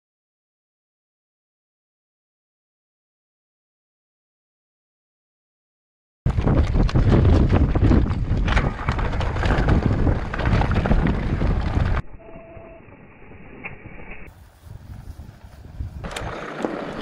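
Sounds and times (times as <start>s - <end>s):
mountain bike rattling: 6.3s - 12.0s, 14.3s - 17.0s
tyres crunching over stones: 6.3s - 12.0s
wind on microphone: 6.3s - 12.5s, 13.6s - 17.0s.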